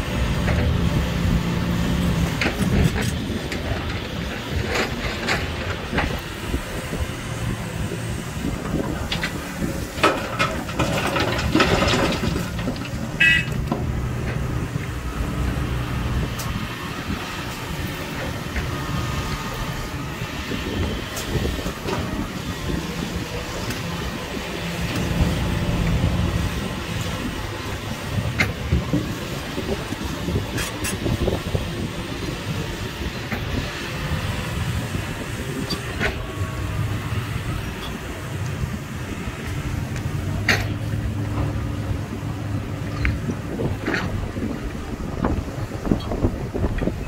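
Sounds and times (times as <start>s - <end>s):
excavator diesel engine running: 0.0s - 47.0s
rock clattering and banging: 10.0s - 13.9s.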